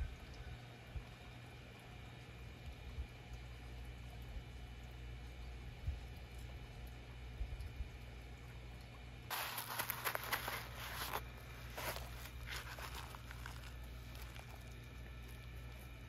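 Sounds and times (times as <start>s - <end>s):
scratchy crackling rustles: 9.3s - 16.0s.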